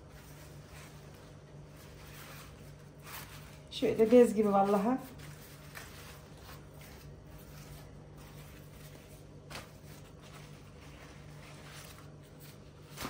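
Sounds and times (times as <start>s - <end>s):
faint low hum: 0.0s - 13.0s
soft rustling of dough sheets: 0.0s - 13.0s.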